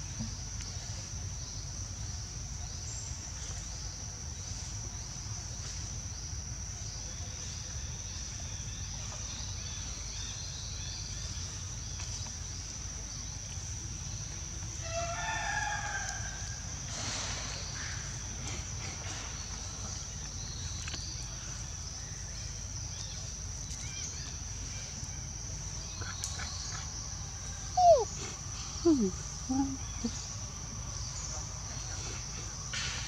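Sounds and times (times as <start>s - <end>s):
crickets or cicadas droning: 0.0s - 33.0s
calls sliding downward in pitch: 27.8s - 28.1s.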